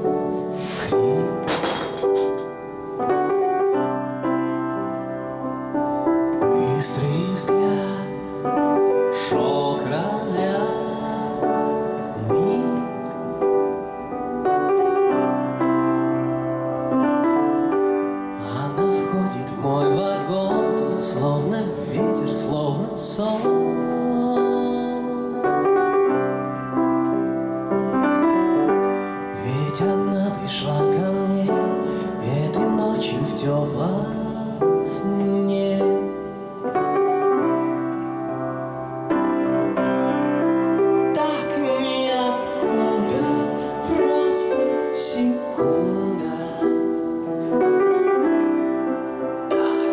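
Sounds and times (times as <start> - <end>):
grand piano: 0.0 - 49.9
man singing into a microphone: 0.6 - 2.0, 6.4 - 13.9, 18.3 - 26.1, 28.9 - 36.5, 41.0 - 47.6, 49.5 - 49.9.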